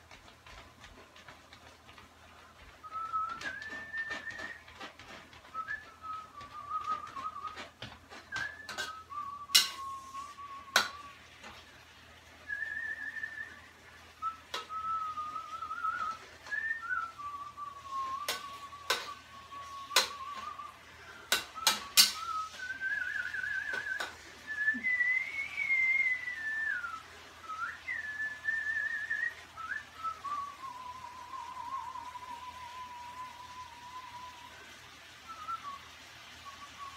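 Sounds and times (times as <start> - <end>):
spatula clacking against a wok: 0.0 - 10.0, 10.7 - 11.6, 14.4 - 16.6, 18.2 - 24.2
person whistling a tune: 2.3 - 11.2, 12.4 - 36.9.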